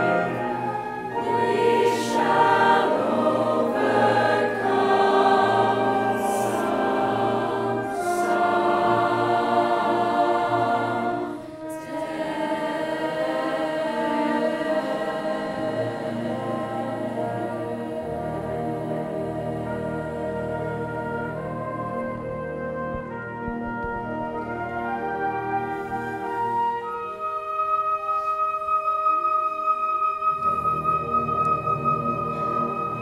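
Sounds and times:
choir singing with accompaniment: 0:00.0 - 0:23.1.

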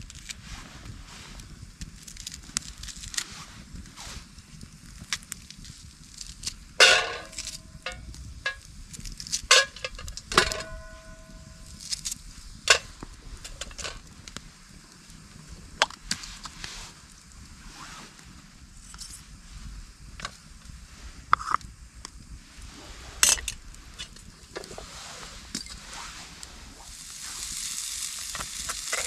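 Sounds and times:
knife clinking on metal pan: 0:06.8 - 0:07.4, 0:10.4 - 0:11.4.

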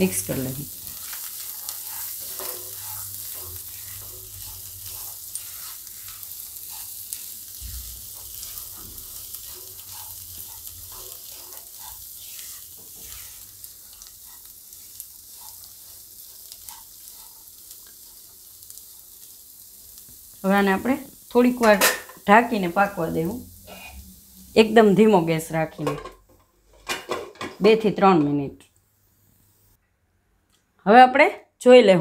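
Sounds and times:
beans sizzling in hot oil: 0:00.0 - 0:28.0
spatula scraping and tapping pan: 0:00.8 - 0:18.4.

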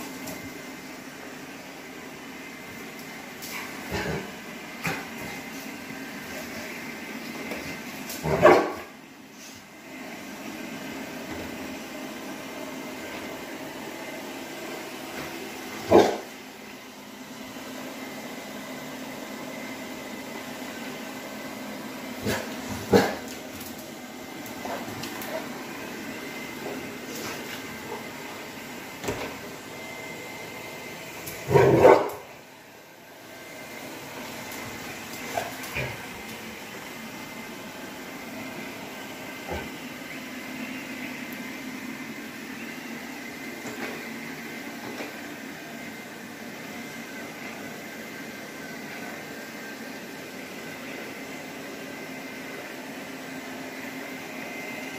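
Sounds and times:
dog barking loudly: 0:08.2 - 0:08.9, 0:15.9 - 0:16.3, 0:31.5 - 0:32.3
robot vacuum cleaner humming: 0:09.7 - 0:54.9.

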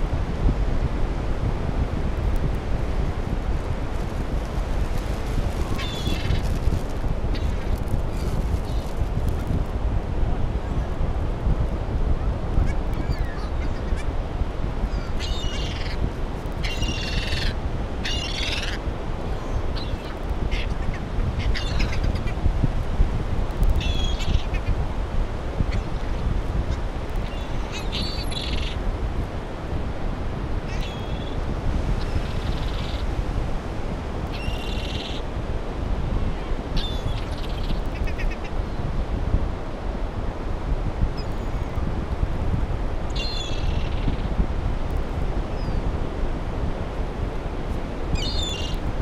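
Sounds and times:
low rush of surf: 0:00.0 - 0:15.2
wind on microphone: 0:00.0 - 0:49.0
gulls calling: 0:05.7 - 0:06.6
seagulls calling: 0:05.8 - 0:06.5, 0:14.9 - 0:16.0, 0:16.6 - 0:22.4, 0:48.2 - 0:48.8.

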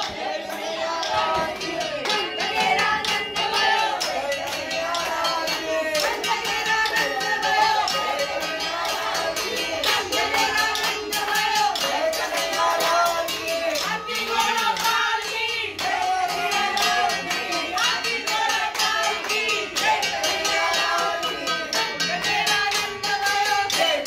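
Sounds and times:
rhythmic percussion beat: 0:00.0 - 0:24.0.

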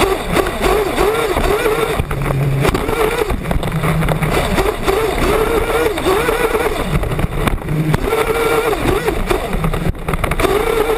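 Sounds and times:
small engine revving: 0:00.0 - 0:10.9
tyres rushing on dirt: 0:00.0 - 0:10.9
wind: 0:00.0 - 0:10.9.

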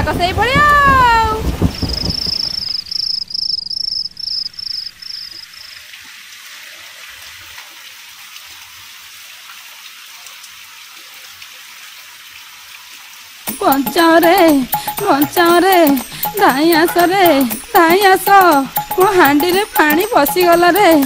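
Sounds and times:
rain on water: 0:00.0 - 0:21.0
cricket chirping: 0:01.7 - 0:05.8.

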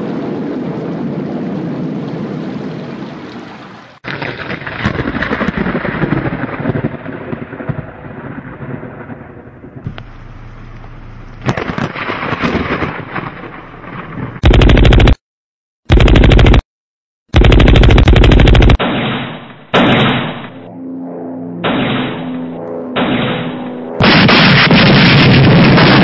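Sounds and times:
low rumble: 0:09.6 - 0:15.2
gunfire crackle: 0:11.4 - 0:15.2, 0:17.4 - 0:20.6, 0:21.6 - 0:26.0
rapid machine-gun fire: 0:14.4 - 0:15.2, 0:15.9 - 0:16.6, 0:17.3 - 0:20.4, 0:23.0 - 0:26.0.

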